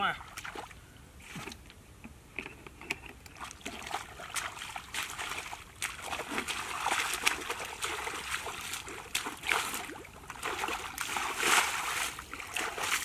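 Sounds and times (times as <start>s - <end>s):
wading through muddy water: 3.4s - 13.0s.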